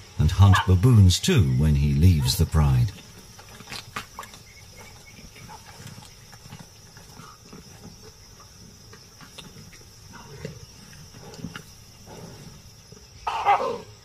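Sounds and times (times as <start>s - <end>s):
insects chirring: 0.0s - 14.0s
lions grumbling: 9.4s - 14.0s.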